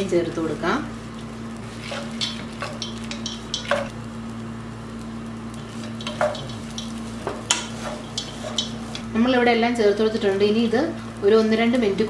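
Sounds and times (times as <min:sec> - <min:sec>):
wooden spatula scraping a pan: 0:01.6 - 0:03.9, 0:05.6 - 0:09.1.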